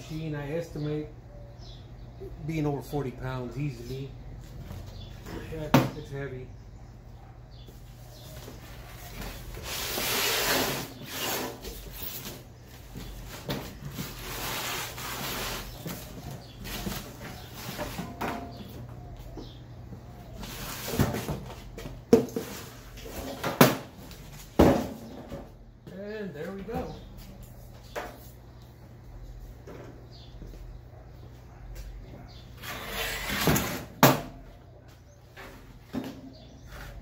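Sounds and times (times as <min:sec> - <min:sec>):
cardboard rustling and scraping: 0:08.1 - 0:18.3.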